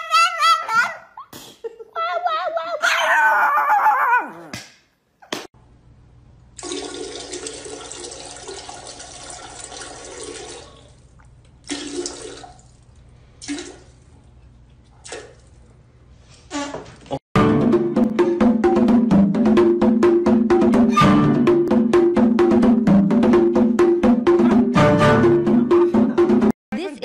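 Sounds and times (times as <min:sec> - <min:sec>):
dog howling: 0:00.0 - 0:01.2, 0:02.2 - 0:04.5
toilet flushing: 0:06.6 - 0:12.8, 0:13.4 - 0:14.0.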